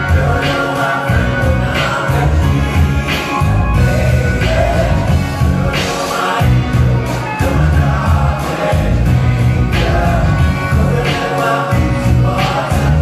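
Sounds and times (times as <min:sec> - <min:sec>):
heavy bass: 0:00.0 - 0:13.0
live band playing amplified music: 0:00.0 - 0:13.0
person singing: 0:00.0 - 0:13.0
steady drum beat: 0:00.0 - 0:13.0.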